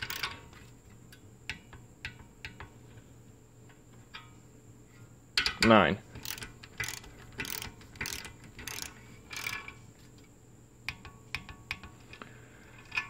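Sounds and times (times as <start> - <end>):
ratchet torque wrench clicking: 0.0 - 0.4, 6.2 - 9.7
sharp wrench clicks: 0.0 - 0.4, 6.2 - 9.7.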